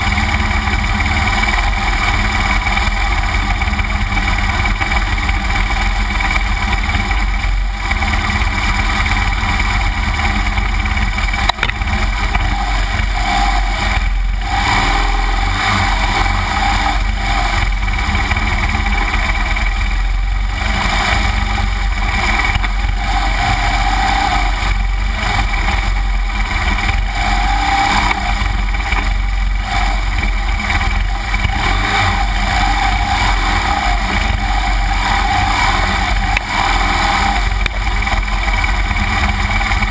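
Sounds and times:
motorcycle engine running under load: 0:00.0 - 0:39.9.

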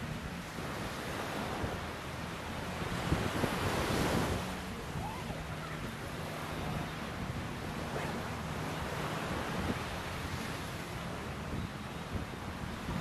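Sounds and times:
surf breaking on beach: 0:00.0 - 0:11.4
wind rumbling on microphone: 0:00.0 - 0:13.0.

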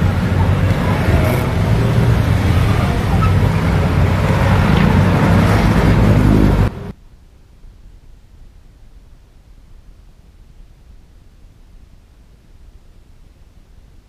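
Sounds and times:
motorcycle engine accelerating: 0:00.0 - 0:06.9
wind and road noise: 0:00.0 - 0:14.0.

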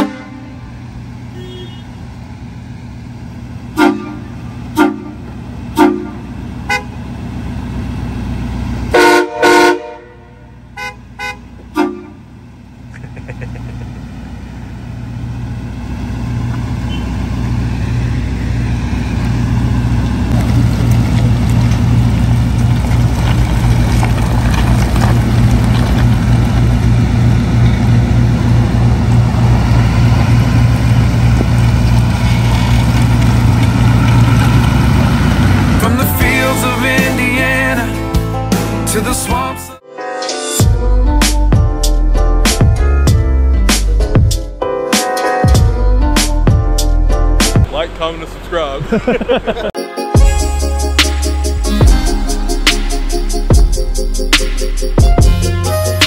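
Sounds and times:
truck horn honking: 0:00.0 - 0:02.1, 0:03.7 - 0:07.1, 0:08.8 - 0:12.4, 0:16.7 - 0:17.3, 0:32.1 - 0:38.5
truck engine droning: 0:00.0 - 0:39.8, 0:40.6 - 0:56.0.

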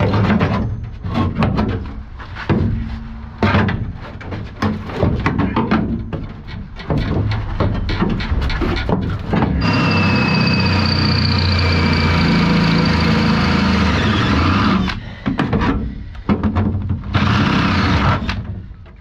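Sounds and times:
cordless drill drilling metal: 0:09.6 - 0:15.0, 0:17.1 - 0:18.4.

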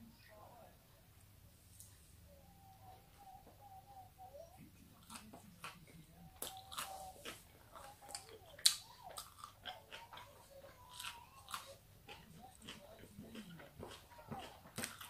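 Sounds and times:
chewing with wet mouth smacks: 0:05.0 - 0:15.0.

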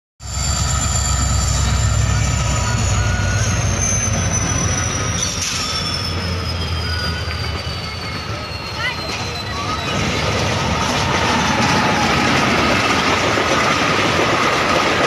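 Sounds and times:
diesel locomotive engine rumble: 0:00.2 - 0:15.0
wheels on rails: 0:00.3 - 0:15.0.

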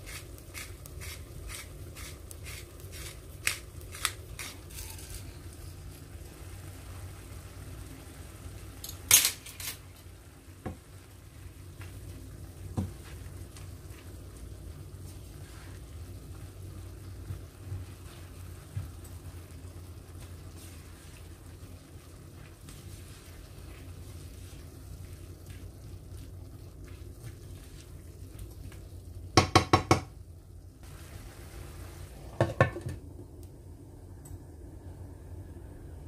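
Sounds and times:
food sizzling in frying pan: 0:00.0 - 0:33.0
glass lid knocking on pan: 0:29.4 - 0:30.1.

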